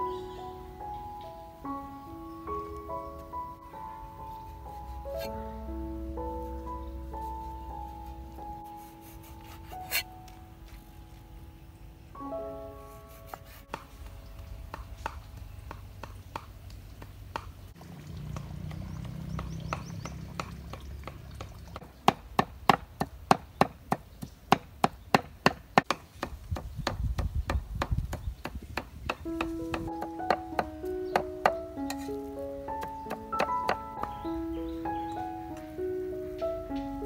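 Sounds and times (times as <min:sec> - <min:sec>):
cleaver chopping on wooden board: 0:19.4 - 0:32.1, 0:32.8 - 0:34.2.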